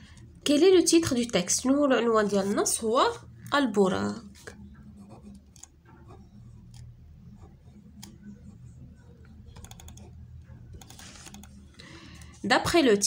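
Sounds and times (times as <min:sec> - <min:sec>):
pen scratching on paper: 0:04.2 - 0:11.4.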